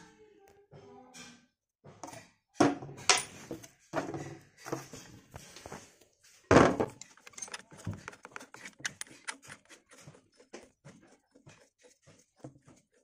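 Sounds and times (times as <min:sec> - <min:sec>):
metal parts clinking on wood: 0:06.8 - 0:09.6.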